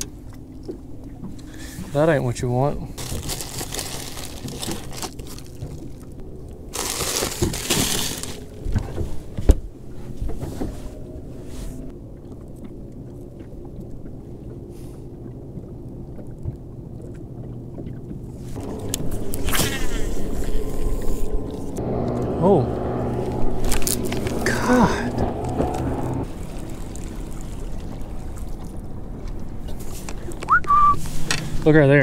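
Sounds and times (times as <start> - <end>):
low steady hum: 0.0 - 32.0
plastic bag crinkling: 3.0 - 6.0, 6.7 - 8.7, 23.3 - 28.8.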